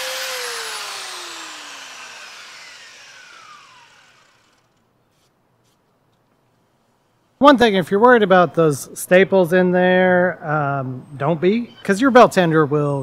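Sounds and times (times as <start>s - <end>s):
belt sander spinning down: 0.0s - 4.8s.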